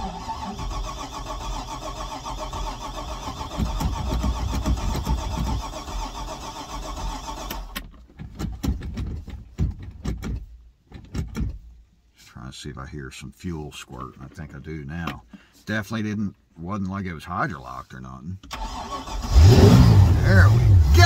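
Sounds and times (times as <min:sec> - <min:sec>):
boat engine cranking: 0:00.0 - 0:11.5.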